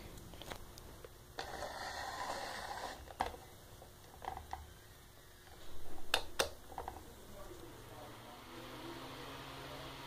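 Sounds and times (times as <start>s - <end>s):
fan scraping on wooden floor: 1.4s - 3.2s.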